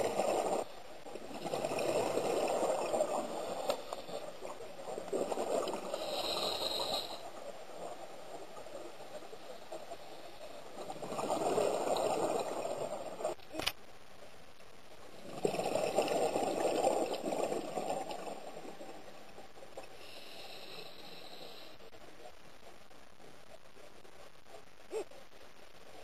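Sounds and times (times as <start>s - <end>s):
underwater exhaled bubbles: 0.0s - 13.4s, 15.1s - 21.7s.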